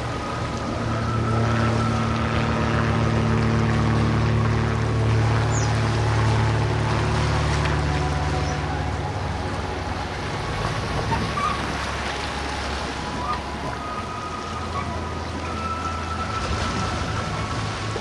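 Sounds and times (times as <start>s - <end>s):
boat engine humming: 0.0s - 18.0s.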